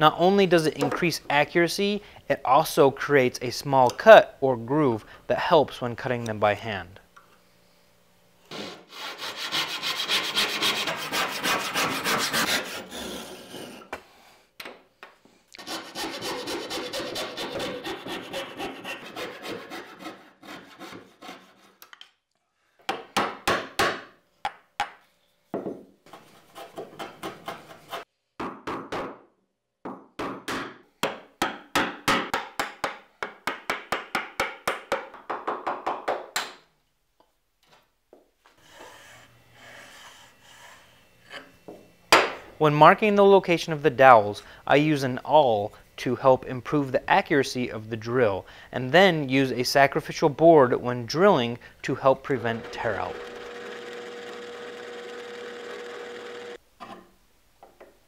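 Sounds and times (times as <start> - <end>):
hand saw rasping through wood: 8.5 - 13.9, 15.6 - 21.8, 38.6 - 41.5
chisel paring wood: 30.2 - 36.6.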